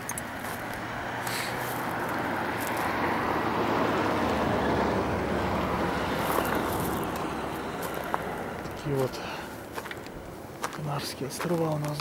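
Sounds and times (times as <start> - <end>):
road vehicle driving past: 0.0 - 11.5.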